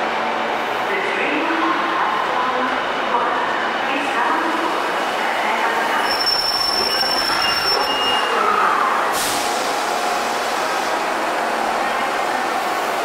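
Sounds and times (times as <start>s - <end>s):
train rolling noise: 0.0s - 13.0s
brake and wheel squeal: 6.0s - 8.5s
hiss of air: 9.1s - 10.5s.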